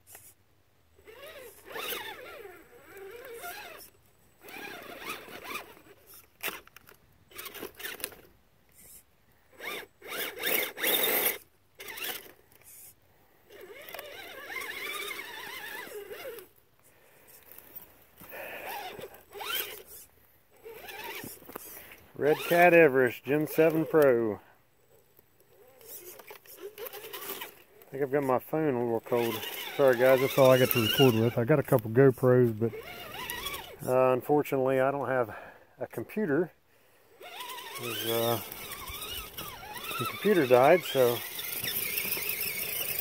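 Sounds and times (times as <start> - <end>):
electric motor whining: 1.0 - 6.7, 8.8 - 12.9, 13.5 - 16.6, 18.3 - 22.8, 25.5 - 27.8, 29.0 - 31.4, 32.6 - 33.9, 37.2 - 43.0.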